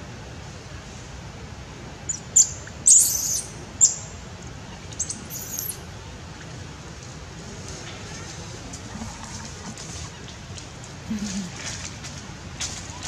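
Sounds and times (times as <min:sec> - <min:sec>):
animal squealing calls: 0:05.0 - 0:05.8.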